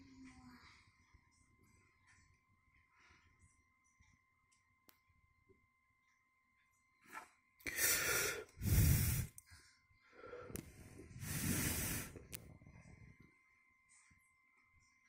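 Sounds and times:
air rushing on microphone: 0:11.2 - 0:12.2.

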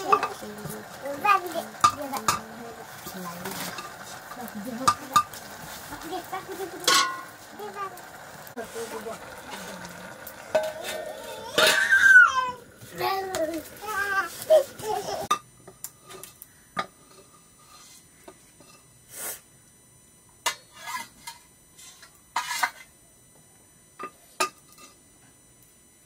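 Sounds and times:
dishes clinking and knocking: 0:06.8 - 0:07.2.

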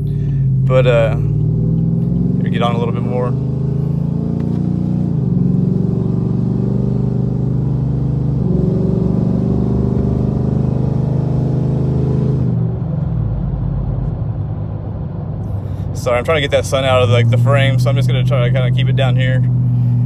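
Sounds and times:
truck engine accelerating: 0:00.0 - 0:20.0.

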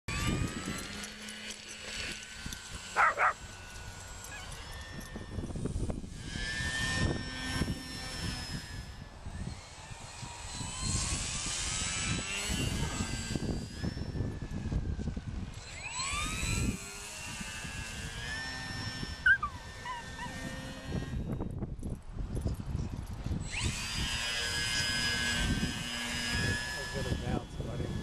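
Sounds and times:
model plane motor whining: 0:00.1 - 0:22.0, 0:22.7 - 0:28.0
dog barking: 0:03.0 - 0:03.4.

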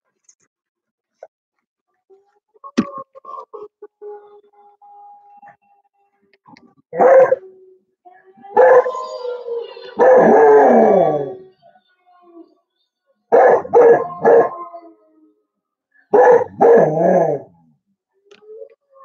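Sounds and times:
dog barking: 0:06.9 - 0:07.4, 0:08.6 - 0:09.0, 0:10.0 - 0:11.0, 0:13.3 - 0:14.6, 0:16.1 - 0:17.4
wolf howls from a video: 0:06.9 - 0:12.7, 0:13.3 - 0:19.0.

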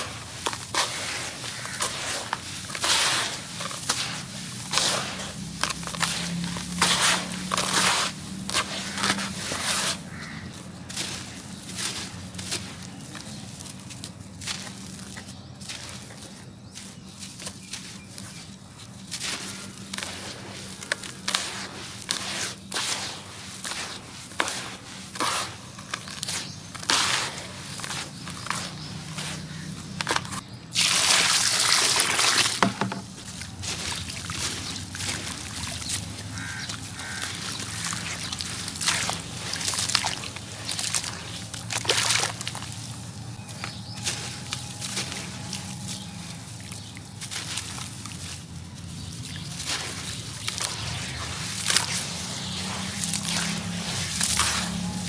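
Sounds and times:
wet cement crumbling: 0:00.0 - 0:16.3, 0:16.9 - 0:55.0
water sloshing and swishing: 0:00.0 - 0:55.0.

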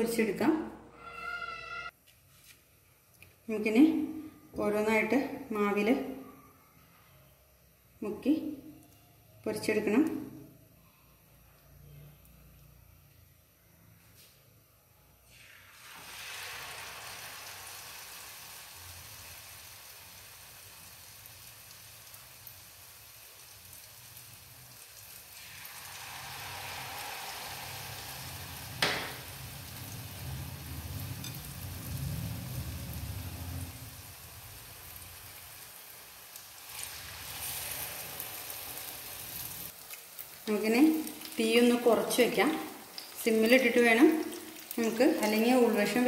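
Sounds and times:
plantain slices frying in oil: 0:15.3 - 0:46.0.

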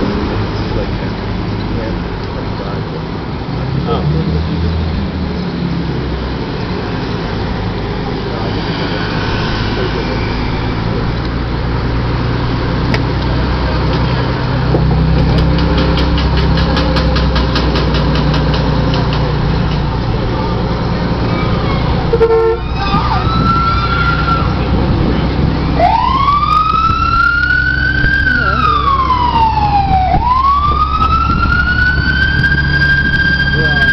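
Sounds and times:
heavy vehicles rumbling past: 0:00.0 - 0:33.9
fire engine siren wailing: 0:07.8 - 0:17.2, 0:19.3 - 0:33.9.

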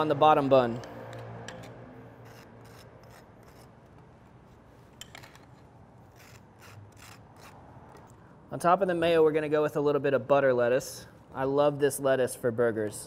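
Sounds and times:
knife scraping in a ramekin: 0:01.5 - 0:04.0.

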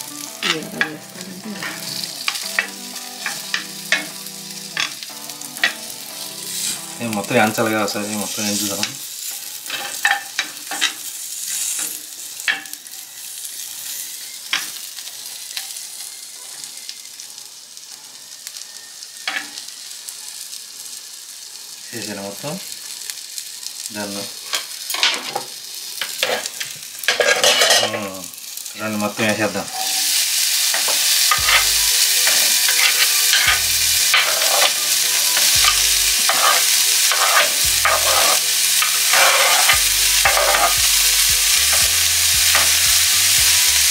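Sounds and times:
cactus sizzling in hot oil: 0:00.0 - 0:43.9
spatula scraping pan: 0:00.4 - 0:04.1, 0:26.0 - 0:28.1, 0:29.5 - 0:40.9, 0:41.6 - 0:43.1.

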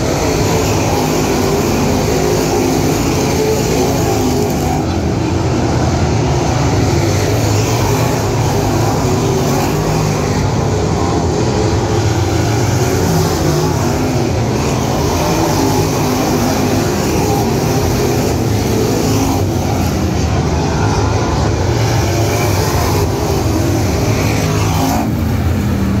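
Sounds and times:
race car engines droning: 0:00.0 - 0:26.0.

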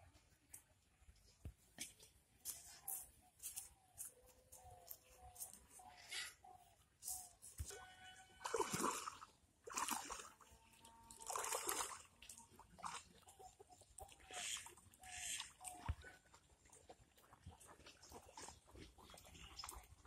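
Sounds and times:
water splashing and sloshing: 0:05.0 - 0:20.0.

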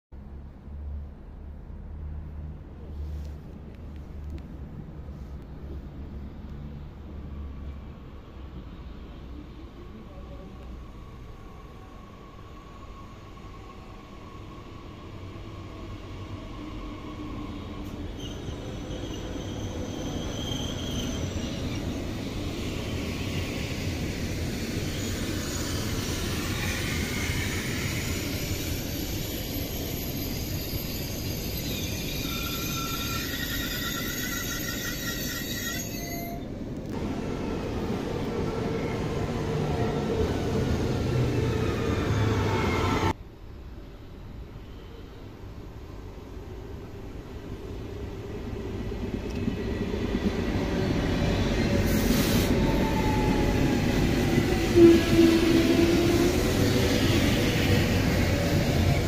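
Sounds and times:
electric train rumbling: 0:00.2 - 0:59.0
high-pitched squealing: 0:24.9 - 0:36.4.

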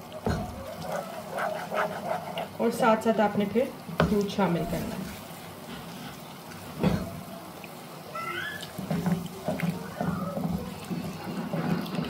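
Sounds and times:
spoon stirring sauce in a pan: 0:00.1 - 0:02.8
spoon knocking on pan: 0:00.2 - 0:02.0.

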